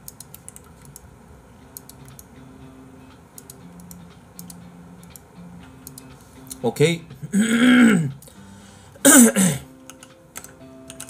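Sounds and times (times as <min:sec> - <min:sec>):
keyboard typing clicks: 0:00.0 - 0:01.1, 0:01.8 - 0:02.3, 0:03.4 - 0:05.2, 0:05.8 - 0:06.6, 0:09.8 - 0:11.0.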